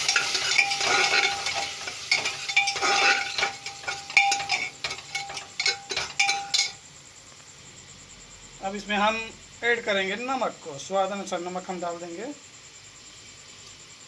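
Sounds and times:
pot ringing: 0.0 - 6.8
spatula scraping metal pot: 0.0 - 6.8.

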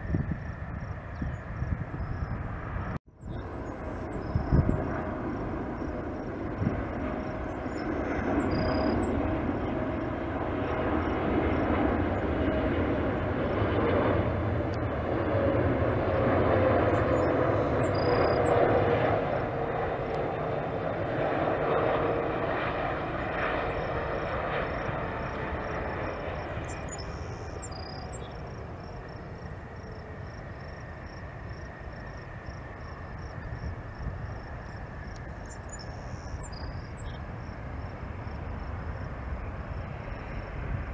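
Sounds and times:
jet engine rumble and whine: 0.0 - 40.9.

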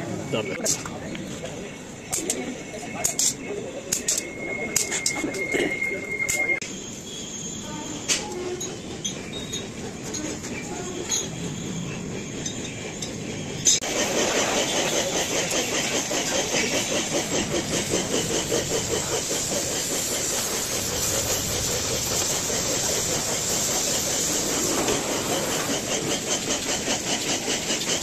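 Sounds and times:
welding torch flame hissing: 13.8 - 28.0.

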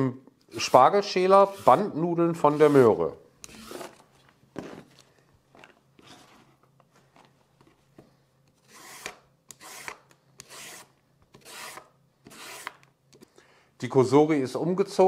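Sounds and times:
peeler scraping carrot: 0.6 - 4.0, 8.6 - 12.9.

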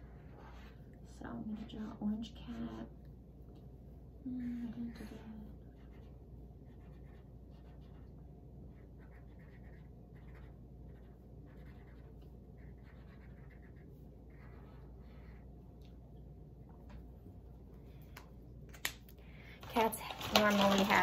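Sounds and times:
marker scratching on paper: 0.0 - 2.9, 4.9 - 15.5
low steady hum: 0.0 - 21.0.

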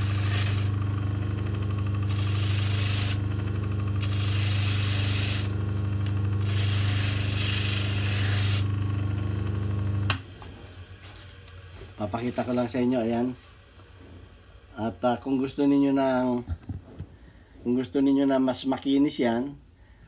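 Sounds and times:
metal rasping on sandpaper: 0.0 - 0.7, 2.1 - 3.2, 6.4 - 8.7
motor humming: 0.0 - 14.8.

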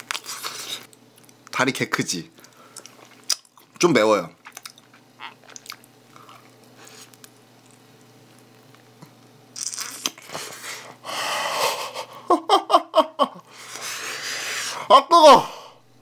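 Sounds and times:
crunching and chewing: 0.0 - 1.6, 2.3 - 11.0.

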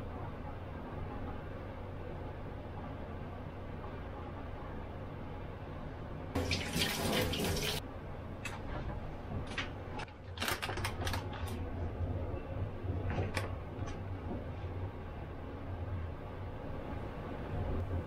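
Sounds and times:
kitchen tap running: 6.4 - 7.8
steady low hum: 11.2 - 18.0.

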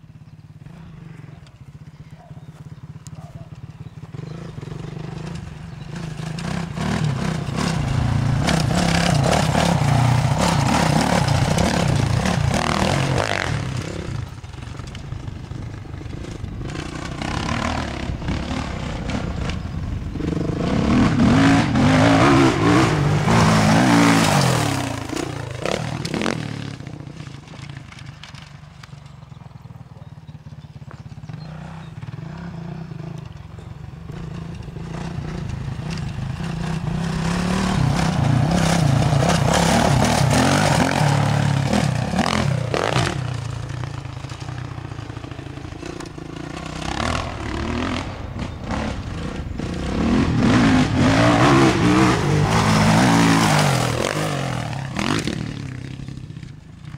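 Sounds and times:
motocross bike engine revving: 0.1 - 56.9.

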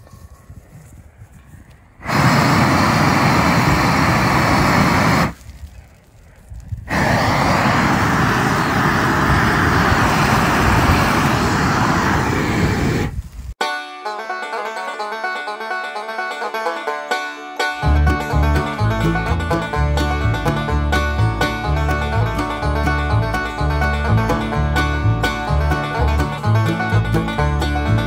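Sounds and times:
propane torch blasts: 2.0 - 6.0, 6.6 - 13.6.

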